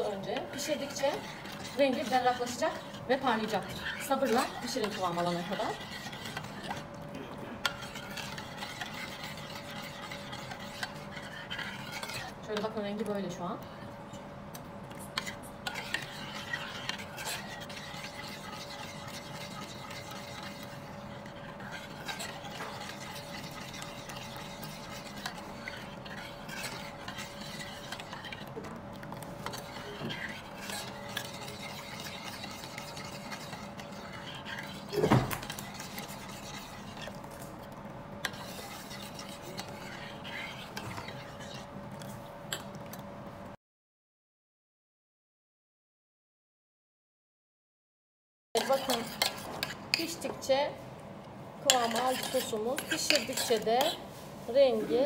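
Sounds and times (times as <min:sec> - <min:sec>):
spoon scraping saucepan: 0:00.0 - 0:07.0, 0:07.6 - 0:12.7, 0:15.0 - 0:42.7, 0:48.6 - 0:50.4, 0:51.6 - 0:54.1
steady hum: 0:00.0 - 0:43.6.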